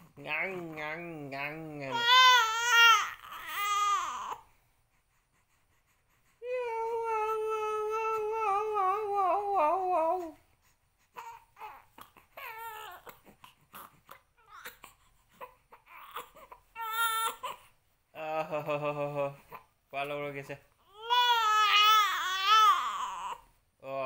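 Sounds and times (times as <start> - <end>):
infant whimpering: 1.7 - 4.5, 5.7 - 10.4, 11.0 - 17.7, 20.8 - 23.5
infant crying: 1.8 - 4.4, 11.1 - 17.7, 20.8 - 23.5.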